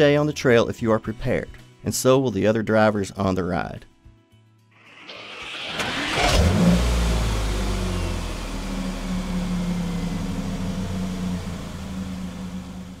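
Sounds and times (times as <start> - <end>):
engine idling: 4.9 - 13.0.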